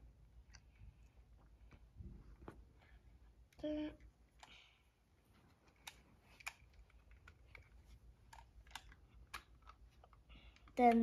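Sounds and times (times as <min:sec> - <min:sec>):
faint plastic clicks: 0:05.6 - 0:11.0.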